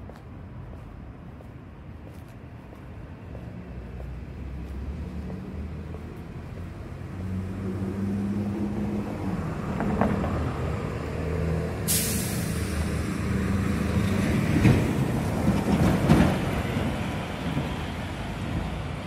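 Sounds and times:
vehicle engine hum: 0:00.0 - 0:19.0
car driving past: 0:03.6 - 0:15.0.

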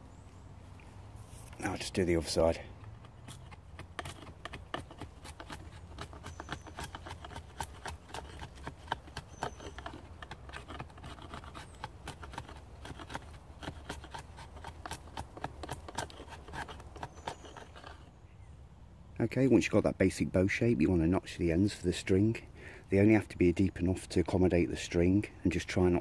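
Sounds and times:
knife shaving wood: 0:01.3 - 0:18.1.

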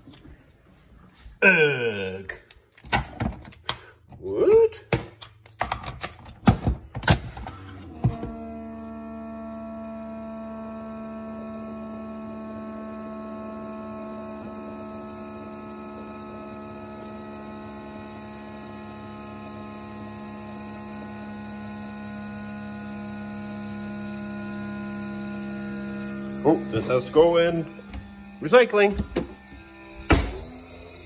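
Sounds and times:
coffee maker humming: 0:07.4 - 0:31.0.

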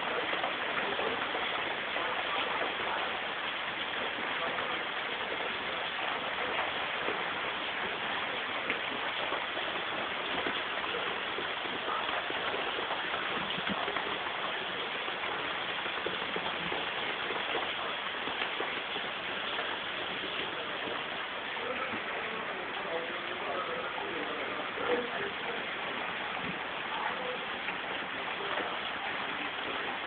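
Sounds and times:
rain falling on concrete: 0:00.0 - 0:30.0.

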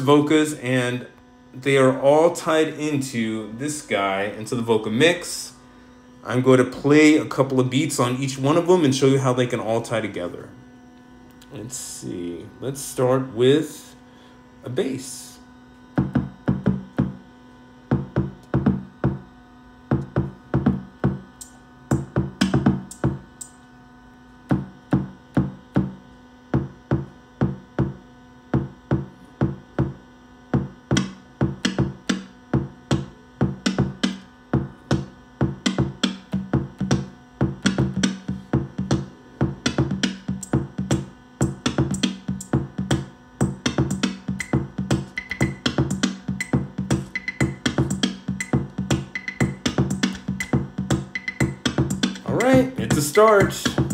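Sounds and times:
drum machine beat: 0:15.9 - 0:23.6, 0:24.5 - 0:53.9.

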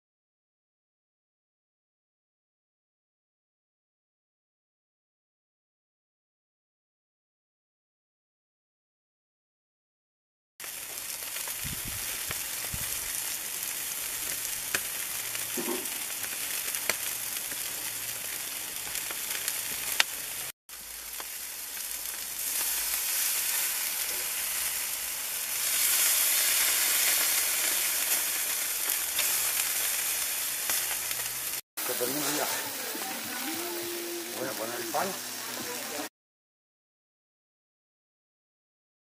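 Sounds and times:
meat sizzling on a grill: 0:10.6 - 0:36.1
fat popping and crackling: 0:10.7 - 0:13.2, 0:14.1 - 0:20.3.

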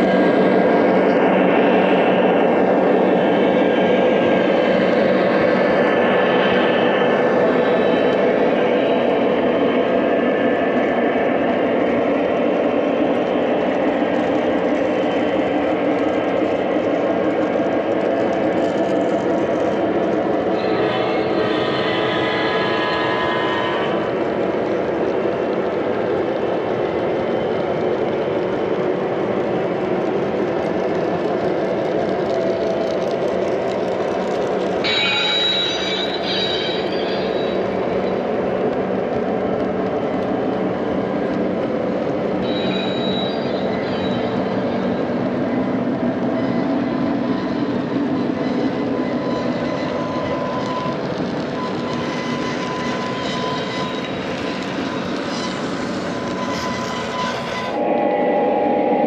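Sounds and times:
high wheel squeals: 0:20.5 - 0:24.2, 0:34.8 - 0:38.4, 0:42.4 - 0:57.9.

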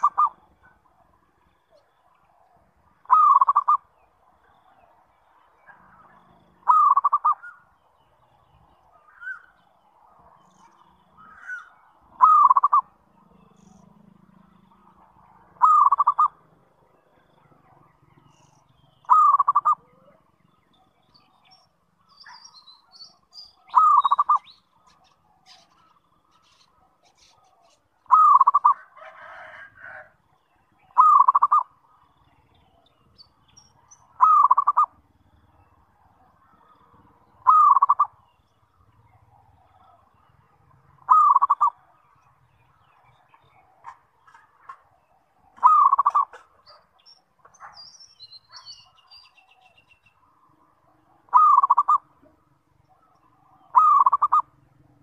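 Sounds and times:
dove cooing: 0:00.0 - 0:03.9, 0:05.8 - 0:07.6, 0:11.2 - 0:13.4, 0:15.0 - 0:16.4, 0:19.0 - 0:20.4, 0:23.6 - 0:30.1, 0:30.8 - 0:31.7, 0:34.1 - 0:35.1, 0:36.1 - 0:38.2, 0:41.0 - 0:41.9, 0:43.4 - 0:47.8, 0:51.0 - 0:55.0.

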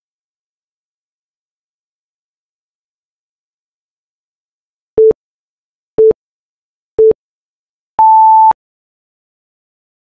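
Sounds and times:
short timer beeps: 0:08.0 - 0:08.6.

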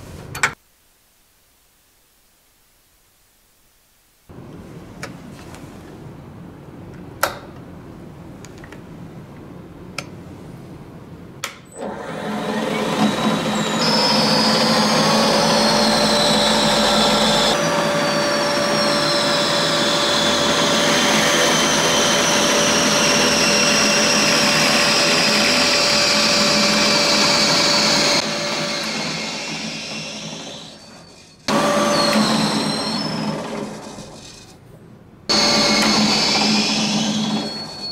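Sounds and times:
drill bit boring into chipboard: 0:11.8 - 0:34.5, 0:35.3 - 0:37.9
drill motor whining: 0:11.8 - 0:34.5, 0:35.3 - 0:37.9.

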